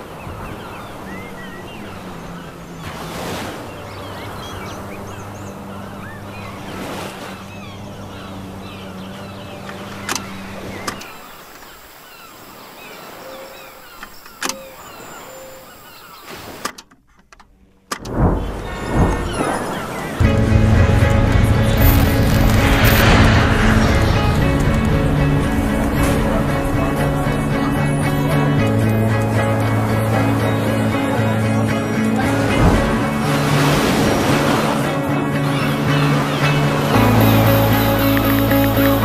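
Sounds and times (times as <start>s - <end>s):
birds chirping: 0.0s - 16.8s, 17.6s - 39.0s
loud whoosh: 20.2s - 30.8s
low hum: 20.2s - 39.0s.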